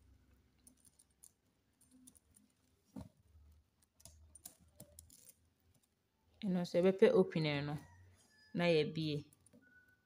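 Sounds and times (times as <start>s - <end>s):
faint clicks of beads and chain: 0.5s - 2.7s, 3.4s - 6.0s.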